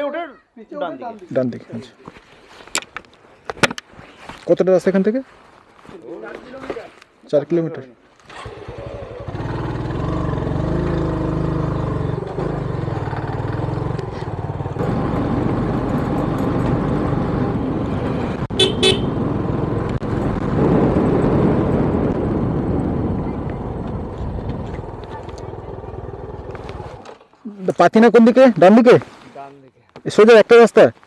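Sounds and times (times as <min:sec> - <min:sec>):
motorcycle engine running: 0:08.3 - 0:27.0
horn toots: 0:18.5 - 0:19.2.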